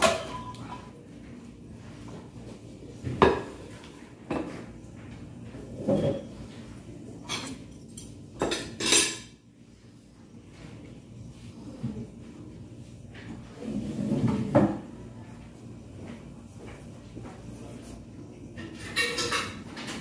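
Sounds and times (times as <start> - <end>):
kitchenware clinking and knocking: 0.0 - 1.0, 3.0 - 4.7, 5.7 - 6.5, 7.2 - 9.4, 18.5 - 20.0
utensils clattering: 0.0 - 1.0, 7.2 - 9.4, 18.6 - 20.0.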